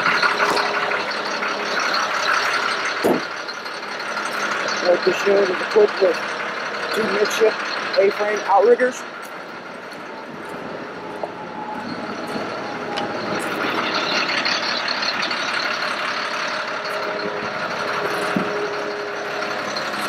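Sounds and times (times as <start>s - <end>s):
truck engine hum and hiss: 0.0s - 20.0s.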